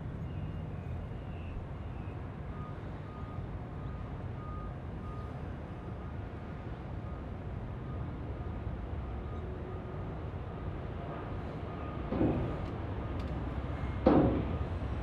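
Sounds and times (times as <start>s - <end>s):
faint electronic reversing beeps: 0.2s - 6.3s, 7.0s - 8.3s, 11.4s - 12.6s.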